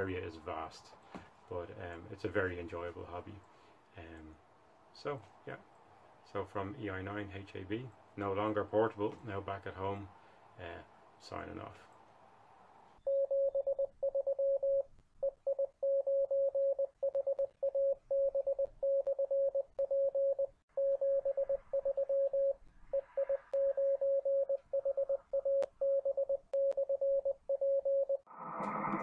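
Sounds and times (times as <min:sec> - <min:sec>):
morse code beeps: 0:13.1 - 0:28.2.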